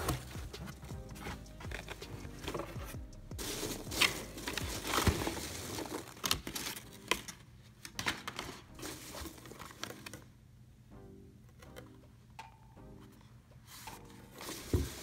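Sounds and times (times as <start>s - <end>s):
packing peanuts rustling and squeaking: 3.4s - 7.4s.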